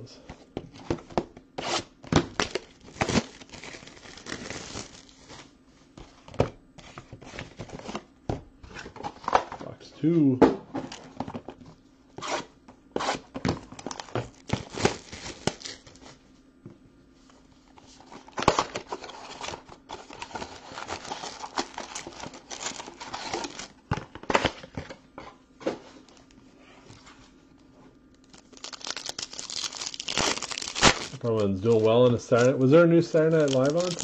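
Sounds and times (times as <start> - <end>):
foil packs crinkling and tearing: 2.2 - 5.5, 13.7 - 16.1, 18.2 - 23.7, 28.2 - 34.0.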